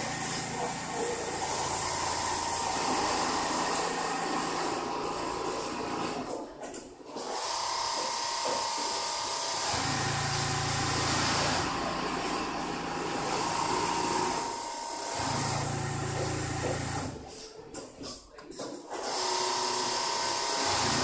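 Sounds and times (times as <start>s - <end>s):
sewing machine running: 0.0s - 6.4s, 7.1s - 17.3s, 18.9s - 21.0s.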